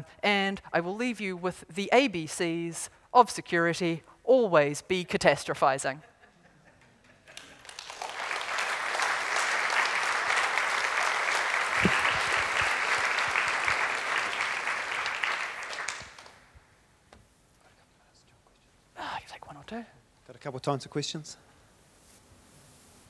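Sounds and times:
audience applauding: 7.3s - 16.5s.

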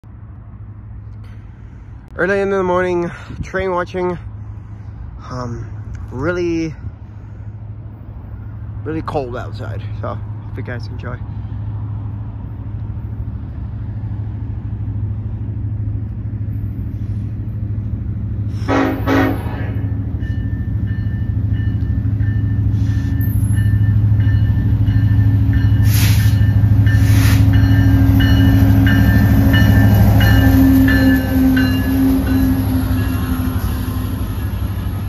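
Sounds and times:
diesel locomotive engine rumble: 0.0s - 35.0s
train horn blasts: 18.5s - 20.0s, 27.0s - 33.6s.

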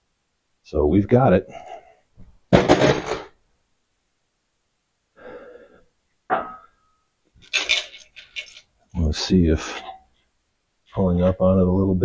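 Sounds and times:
metallic clink: 7.4s - 8.7s.

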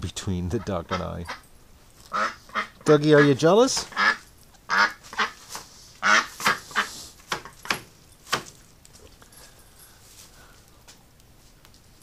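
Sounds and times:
duck quacking: 0.4s - 1.4s, 2.1s - 5.4s, 6.0s - 7.0s.

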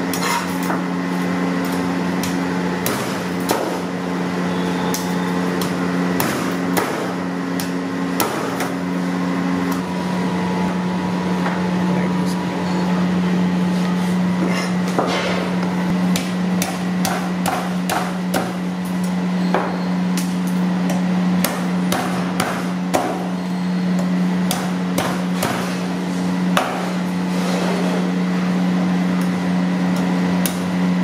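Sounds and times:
steady low hum: 0.0s - 31.0s
cleaver chopping on wooden board: 1.6s - 3.9s, 5.0s - 8.8s, 16.1s - 18.6s, 20.9s - 23.3s, 24.0s - 25.8s, 26.5s - 27.0s.

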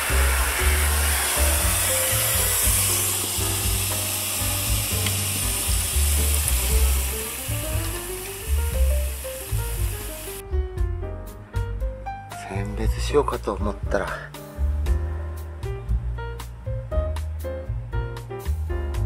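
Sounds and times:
hose spray hissing into water: 0.0s - 10.4s
background music with pulsing bass: 13.4s - 19.0s.

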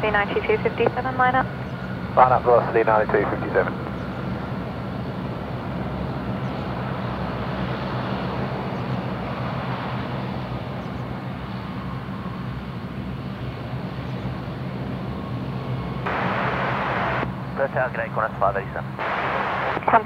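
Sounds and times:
turboprop engines droning: 0.0s - 20.0s
held low tones: 16.1s - 17.3s.

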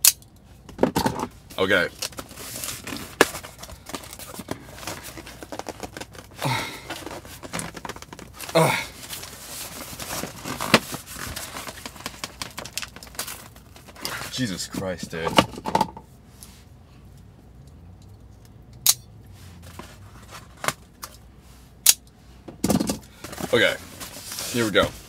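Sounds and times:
cardboard crinkling and scraping: 1.2s - 15.6s, 19.4s - 21.0s, 23.1s - 25.0s
tape tearing: 1.9s - 14.4s.

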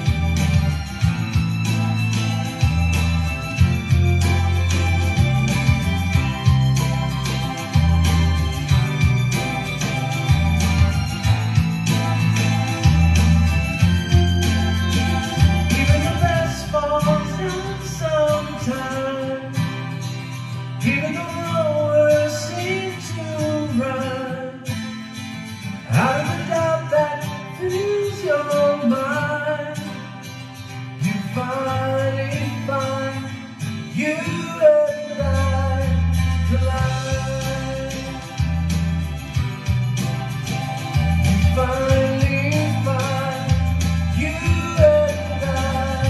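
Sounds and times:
acoustic guitar strumming: 0.0s - 46.0s
man singing: 13.8s - 19.9s, 20.8s - 25.0s, 25.8s - 30.1s, 31.0s - 38.6s, 41.2s - 46.0s.

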